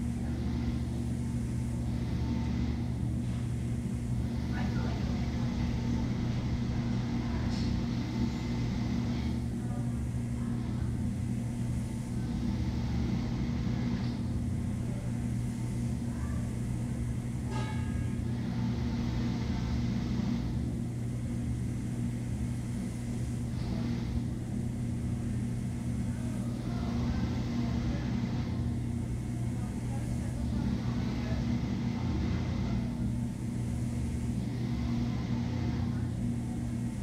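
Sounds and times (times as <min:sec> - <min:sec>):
steady low hum: 0:00.0 - 0:37.0
small clink: 0:17.5 - 0:18.2.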